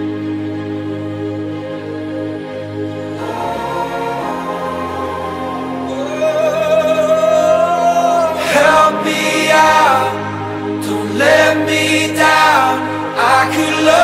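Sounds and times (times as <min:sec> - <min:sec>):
sustained chords: 0:00.0 - 0:14.0
person singing long notes: 0:03.1 - 0:14.0.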